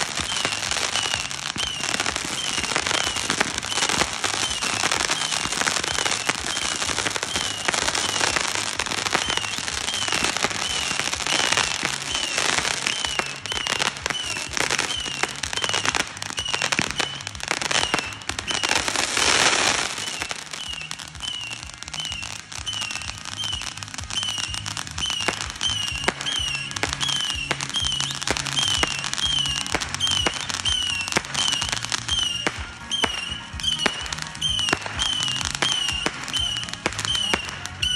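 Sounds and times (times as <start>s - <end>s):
firework hissing burst: 0.0s - 21.5s
fireworks crackling and popping: 0.0s - 37.9s
music: 0.0s - 37.9s.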